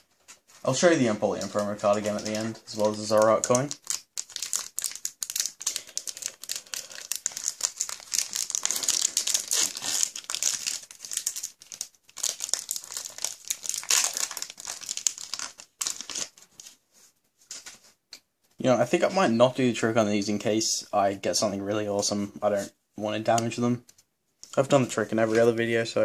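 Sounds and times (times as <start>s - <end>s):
foil wrapper crinkling: 0.7s - 16.7s.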